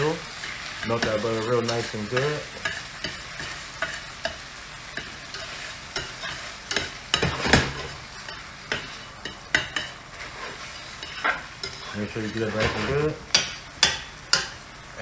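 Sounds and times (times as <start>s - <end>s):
chicken sizzling in pot: 0.0s - 15.0s
utensil scraping metal pot: 5.0s - 14.5s.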